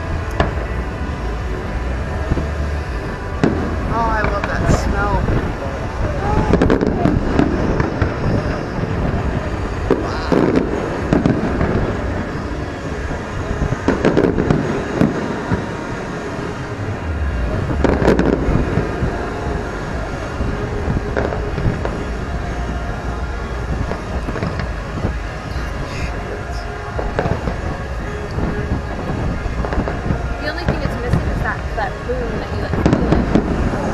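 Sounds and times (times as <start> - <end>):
low rumble: 0.0 - 33.9
firework shells booming: 6.4 - 12.4, 13.0 - 15.8.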